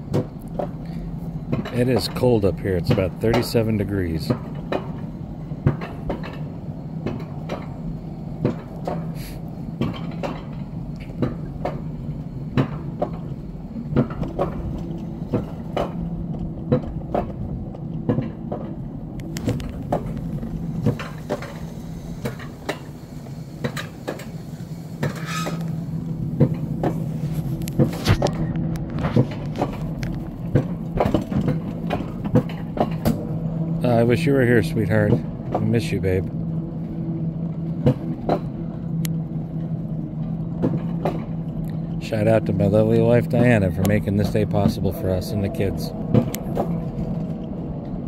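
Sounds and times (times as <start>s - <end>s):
low lift hum: 0.0s - 48.0s
sharp clacks from coaster track: 0.0s - 48.0s.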